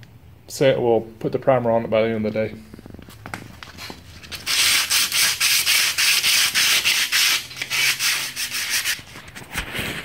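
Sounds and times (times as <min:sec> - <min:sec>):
sandpaper rubbing on metal: 0:04.3 - 0:09.2.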